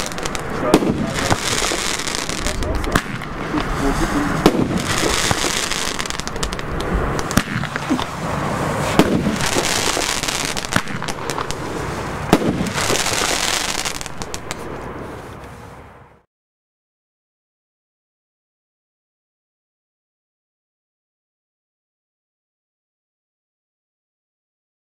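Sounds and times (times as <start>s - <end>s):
dense firework crackling: 0.0s - 15.2s
firework bangs: 0.0s - 15.2s.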